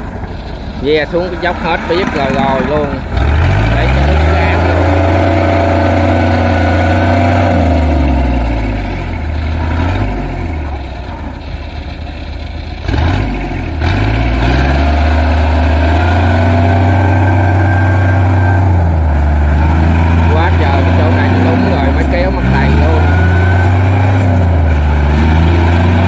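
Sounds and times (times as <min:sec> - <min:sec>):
tracked cart engine running: 0:00.0 - 0:26.0.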